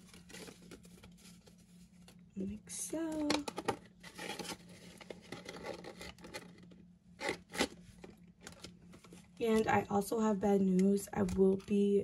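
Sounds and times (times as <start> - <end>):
banknotes and envelope rustling: 0.0 - 2.2.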